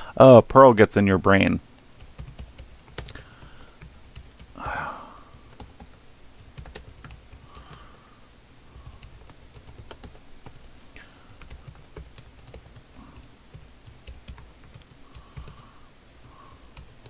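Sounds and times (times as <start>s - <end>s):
computer keyboard typing: 2.0s - 8.0s, 8.8s - 10.7s, 11.3s - 15.7s, 16.7s - 17.0s.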